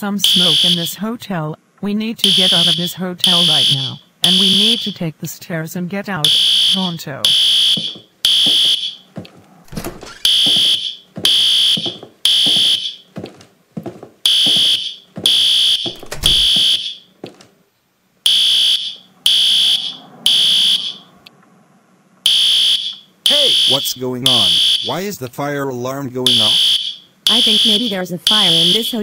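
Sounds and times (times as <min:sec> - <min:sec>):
fire alarm beeping: 0:00.2 - 0:00.9, 0:02.2 - 0:05.0, 0:06.2 - 0:09.1, 0:10.1 - 0:13.0, 0:14.3 - 0:17.1, 0:18.3 - 0:21.1, 0:22.3 - 0:25.0, 0:26.2 - 0:29.0.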